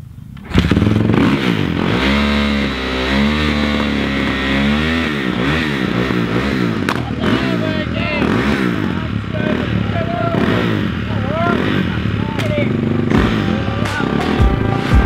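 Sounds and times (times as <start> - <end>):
dirt bike kick-started: 0.3 - 10.8
dirt bike engine revving: 0.4 - 15.0.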